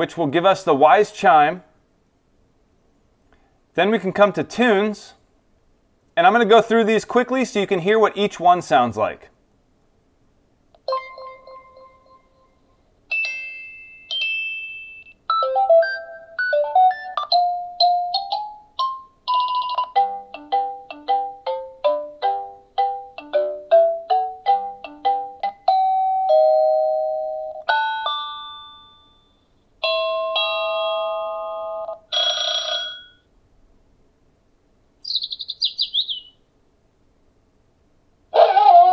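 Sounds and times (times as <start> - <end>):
ding-dong doorbell tones: 10.9 - 15.2, 25.6 - 33.3
electronic chime melodies: 10.9 - 18.1.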